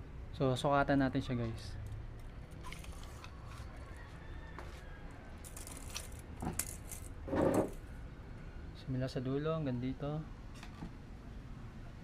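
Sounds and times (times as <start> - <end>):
handling clicks and rustles: 5.4 - 7.2.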